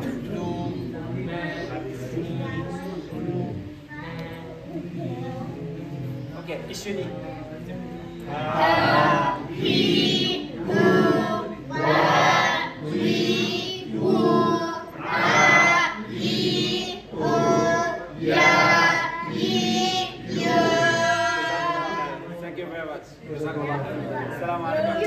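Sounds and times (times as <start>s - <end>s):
group of voices chanting: 8.3s - 22.3s.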